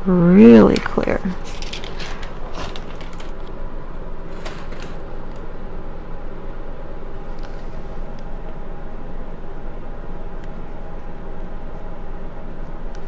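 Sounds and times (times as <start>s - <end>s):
plastic film crackling: 1.3s - 3.6s, 4.2s - 5.4s.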